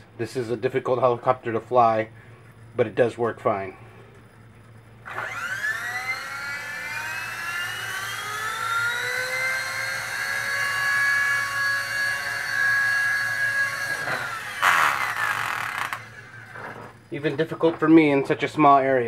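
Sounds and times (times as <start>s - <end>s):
rc helicopter rotor whine: 5.0s - 17.0s.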